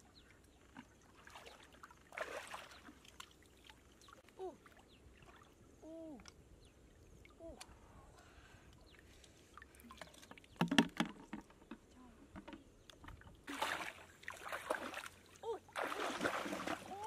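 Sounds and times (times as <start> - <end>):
muddy water sloshing: 0.5 - 5.7, 9.0 - 11.7, 12.8 - 17.0.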